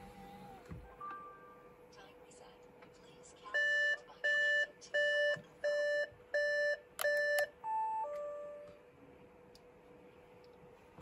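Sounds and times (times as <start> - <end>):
car warning beeps: 3.5 - 8.4.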